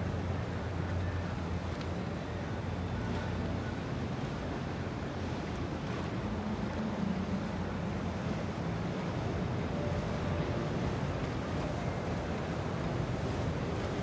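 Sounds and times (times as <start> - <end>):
boat motor humming: 0.0 - 14.0
water wash: 0.0 - 14.0.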